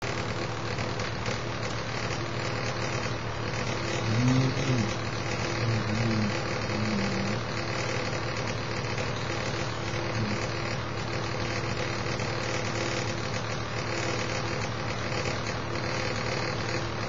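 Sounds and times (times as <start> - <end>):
steady hum and hiss: 0.1 - 17.0
short low voiced hums: 3.6 - 8.2, 9.9 - 10.8.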